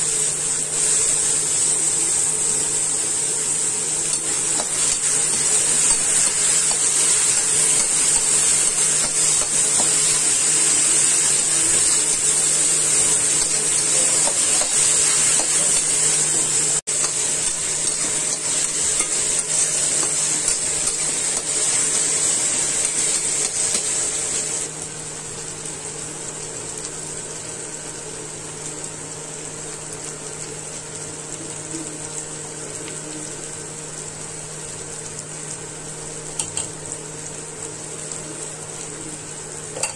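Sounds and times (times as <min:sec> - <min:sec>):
onions sizzling in oil: 0:00.0 - 0:39.9.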